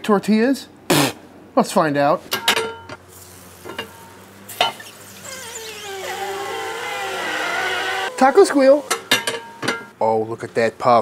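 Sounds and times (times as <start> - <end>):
wavering squeal of escaping steam: 4.8 - 9.0
metal lid clanking shut: 8.9 - 9.9.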